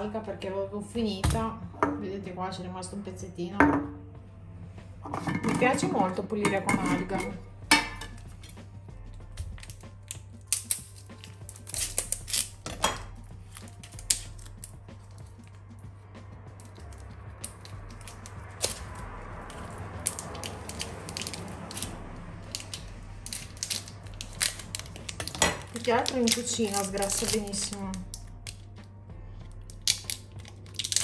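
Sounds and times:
plastic wrapping crinkling: 0:19.5 - 0:28.6, 0:29.7 - 0:31.0.

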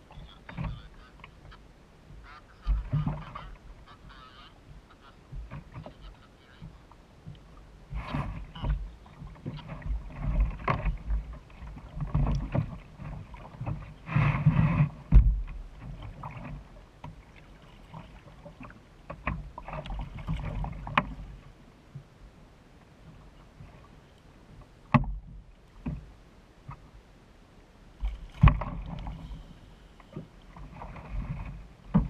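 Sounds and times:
water splashing: 0:00.0 - 0:21.5, 0:28.0 - 0:32.0
knocks against kayak hull: 0:14.4 - 0:15.7, 0:24.9 - 0:26.1, 0:28.0 - 0:29.1, 0:31.1 - 0:32.0.

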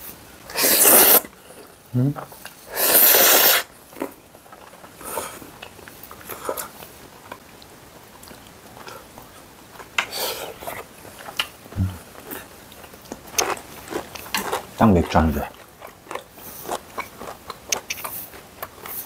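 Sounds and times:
slurping noodles: 0:00.5 - 0:01.3, 0:02.7 - 0:03.7
chewing: 0:03.9 - 0:19.0.

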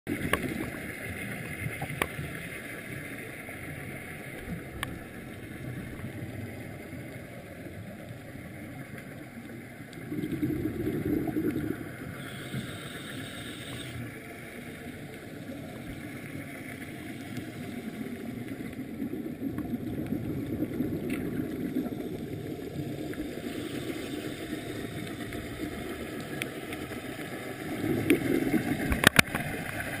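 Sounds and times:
muffled underwater rush: 0:00.1 - 0:30.0.

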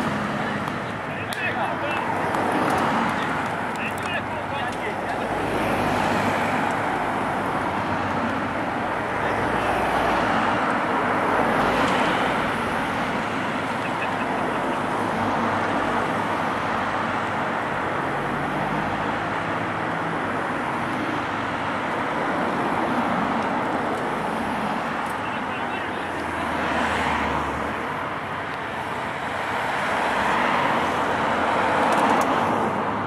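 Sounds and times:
cars passing by: 0:00.0 - 0:33.0.

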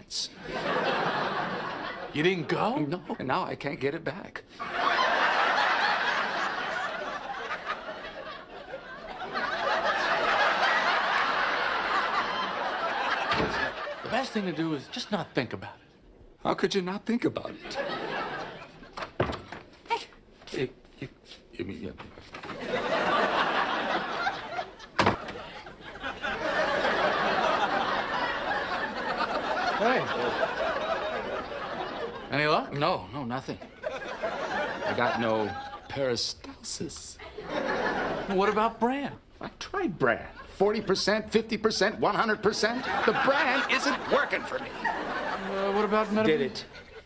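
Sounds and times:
studio audience laughing: 0:00.4 - 0:02.8, 0:04.5 - 0:15.1, 0:17.6 - 0:19.3, 0:22.4 - 0:32.6, 0:33.6 - 0:36.2, 0:37.2 - 0:38.8, 0:42.1 - 0:47.0.

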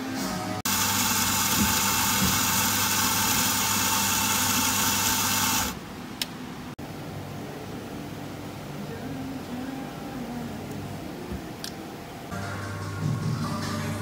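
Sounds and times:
coffee grinder motor: 0:00.7 - 0:05.8.

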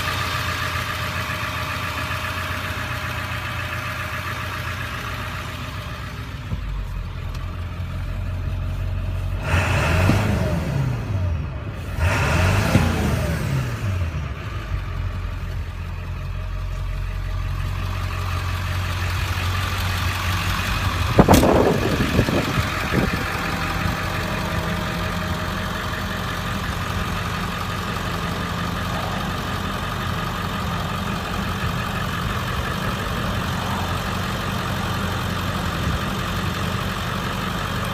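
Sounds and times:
diesel engine idling: 0:00.0 - 0:37.9
loud thump: 0:21.2 - 0:22.0.

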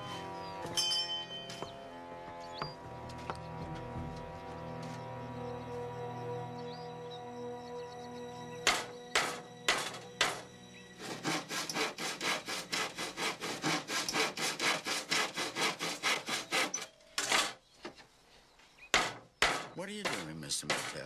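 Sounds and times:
handsaw cutting wood: 0:08.7 - 0:17.6, 0:19.0 - 0:21.0.

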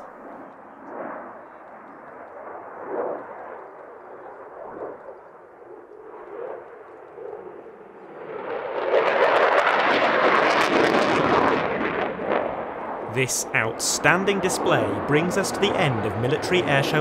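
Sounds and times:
fighter jet crackling rumble: 0:06.0 - 0:17.0.

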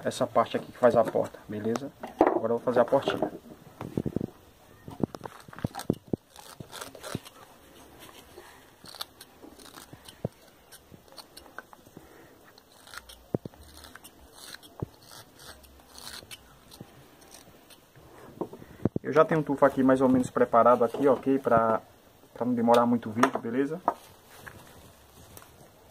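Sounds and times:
knife scraping wood: 0:05.0 - 0:11.8, 0:12.4 - 0:18.6.

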